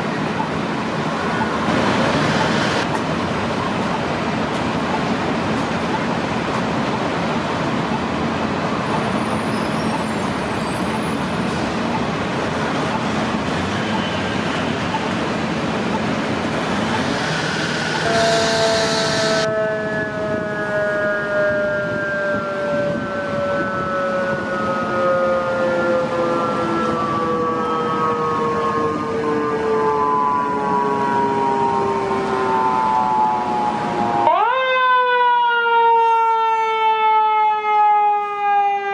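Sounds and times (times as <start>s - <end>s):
steady rushing noise: 0.0s - 19.5s
fire engine siren winding down: 15.9s - 38.9s.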